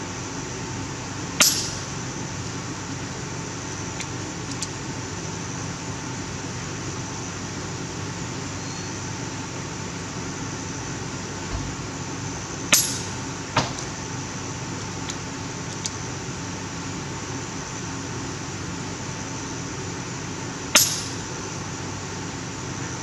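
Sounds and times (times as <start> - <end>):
air rifle cracks: 1.4 - 1.9, 20.8 - 21.2.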